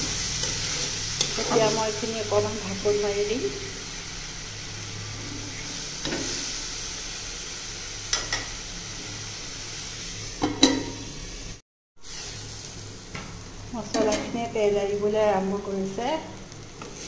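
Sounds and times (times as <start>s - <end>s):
food sizzling in oil: 0.0s - 17.0s
metal lid clanking on pan: 10.4s - 11.1s.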